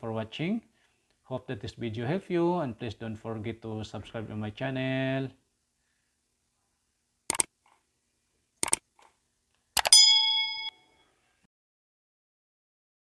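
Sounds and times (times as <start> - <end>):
mouse clicks: 7.3 - 7.8, 8.6 - 9.1, 9.8 - 10.0
short bell ding: 9.9 - 11.0.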